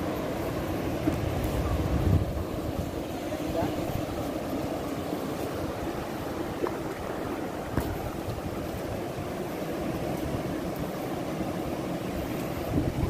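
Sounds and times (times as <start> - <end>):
sea surf on rocky shore: 0.0 - 13.0
wind buffeting microphone: 0.0 - 13.0.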